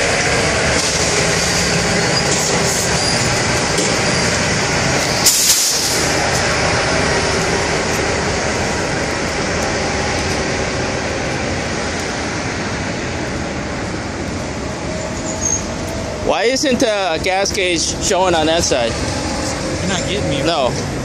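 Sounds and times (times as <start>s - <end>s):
heavy engines idling: 0.0s - 21.0s
truck fuelling rush: 0.0s - 21.0s
short hiss: 5.2s - 6.1s.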